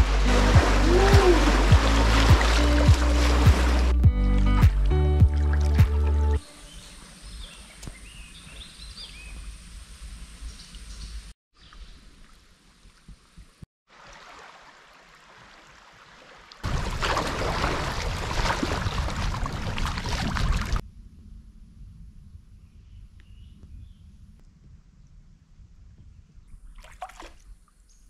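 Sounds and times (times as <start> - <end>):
water rushing around hull: 0.0 - 7.1, 13.9 - 20.8, 26.8 - 27.5
paddle dipping and splashing: 0.0 - 7.2, 13.9 - 20.8, 26.7 - 27.6.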